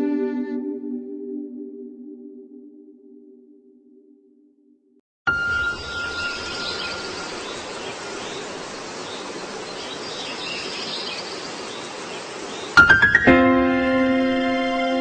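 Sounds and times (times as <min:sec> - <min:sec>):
faint high chirps: 0:05.3 - 0:09.3
steady hiss: 0:05.9 - 0:13.1.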